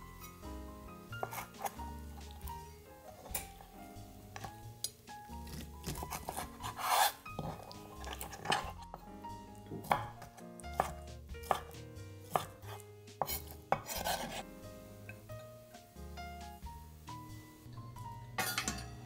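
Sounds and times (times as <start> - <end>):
soft background music: 0.0 - 19.0
knife scraping cuts: 1.2 - 1.8, 5.4 - 8.9, 10.8 - 14.5
knife chopping on cutting board: 1.2 - 2.6, 5.4 - 9.0, 9.7 - 14.4.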